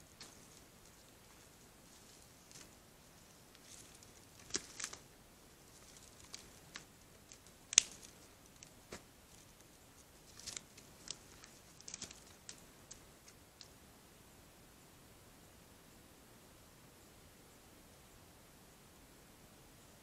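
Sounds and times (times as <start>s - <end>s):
twigs cracking underfoot: 0.1s - 13.7s.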